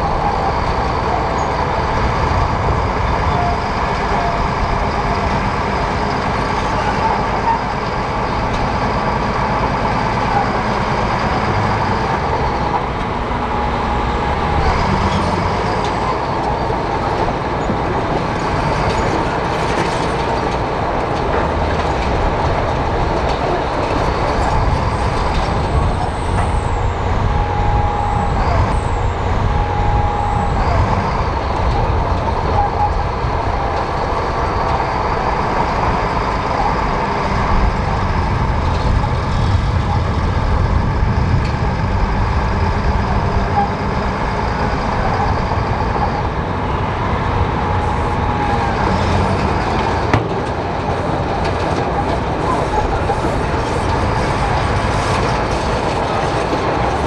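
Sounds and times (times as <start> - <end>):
bulldozer diesel engine under load: 0.0 - 57.0
steel tracks rattling: 0.0 - 57.0.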